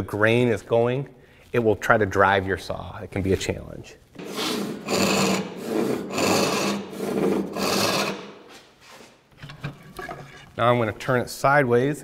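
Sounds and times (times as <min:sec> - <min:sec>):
hand saw rasping through wood: 0:04.2 - 0:08.5.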